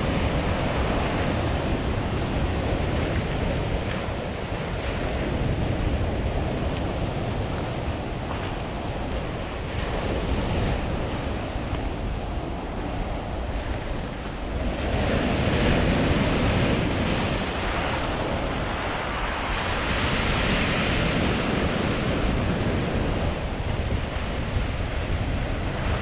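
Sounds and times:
waves breaking on pebble beach: 0:00.0 - 0:26.0.

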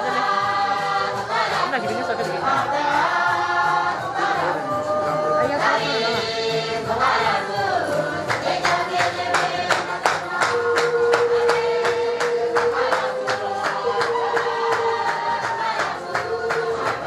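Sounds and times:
group singing held notes: 0:00.0 - 0:17.0
hand claps: 0:07.9 - 0:17.0.

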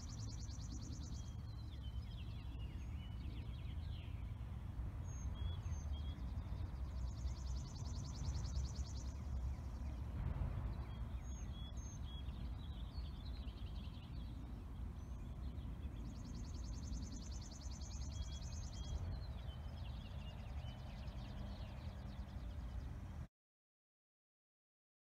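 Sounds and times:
birds chirping: 0:00.0 - 0:23.3.

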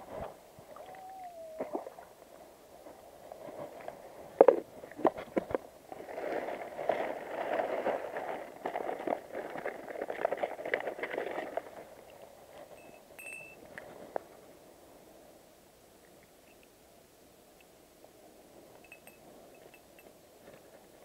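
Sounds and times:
plastic bag crinkling: 0:06.0 - 0:11.9.

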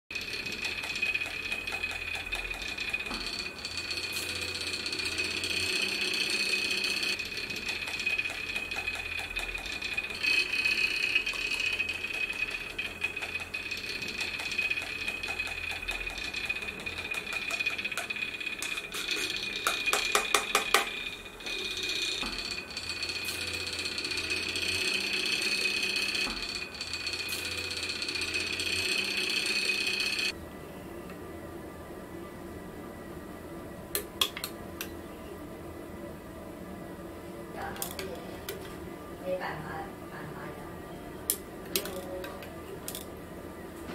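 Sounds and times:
fast clicking rattle: 0:00.1 - 0:21.0
magnetic stirrer whining: 0:00.1 - 0:30.4.

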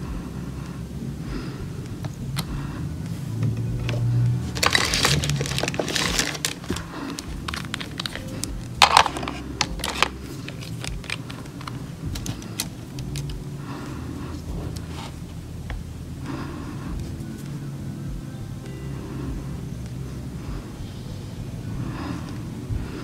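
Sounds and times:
low steady hum: 0:00.0 - 0:23.0
crackly rustling: 0:01.3 - 0:16.4
bottles and plastic tray clicking: 0:04.6 - 0:13.3.

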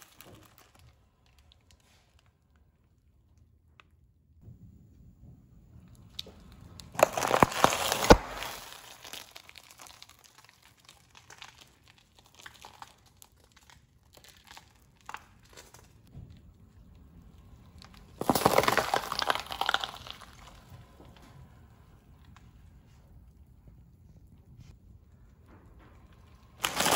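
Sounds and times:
cardboard and cereal crunching: 0:00.0 - 0:02.2, 0:06.9 - 0:16.1, 0:17.8 - 0:21.1, 0:26.6 - 0:26.9
pepper crushed by tyre: 0:06.8 - 0:11.4, 0:17.8 - 0:20.9, 0:26.6 - 0:26.9.

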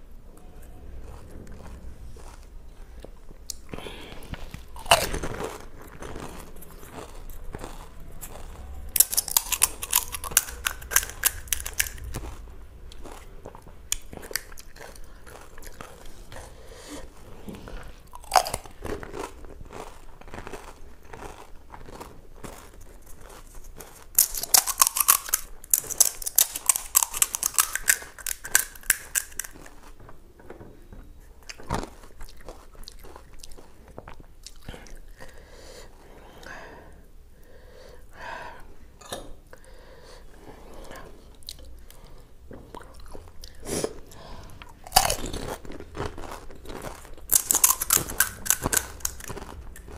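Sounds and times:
crisp shells crackling: 0:09.0 - 0:12.4, 0:24.1 - 0:29.9, 0:45.0 - 0:49.9.

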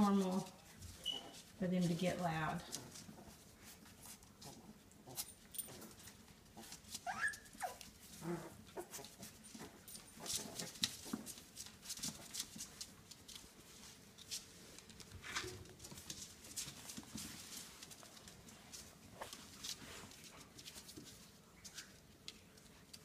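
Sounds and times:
paws and toys on tile floor: 0:00.0 - 0:23.0
puppies yipping and whimpering: 0:07.0 - 0:09.0.

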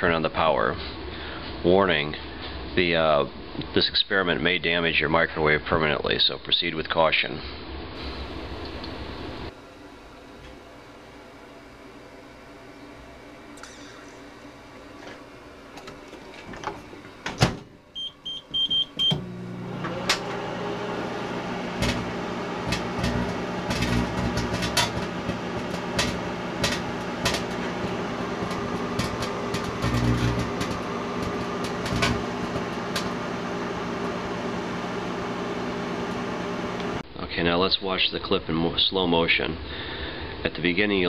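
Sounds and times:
microwave oven humming: 0:08.0 - 0:37.0
keypad beeps: 0:18.0 - 0:19.2
plasma buzzing and crackling: 0:21.1 - 0:34.5.

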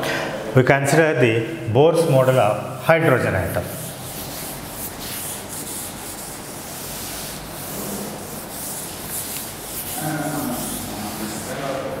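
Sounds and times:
duster scraping chalkboard: 0:03.1 - 0:12.0.

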